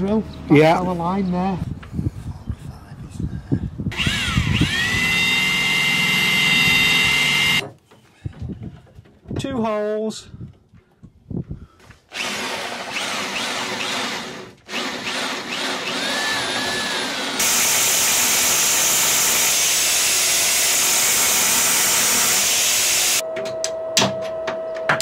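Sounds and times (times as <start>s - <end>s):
power drill boring through steel: 3.9s - 7.6s, 12.1s - 23.2s
power tool running with hiss: 4.0s - 7.6s, 17.4s - 23.2s.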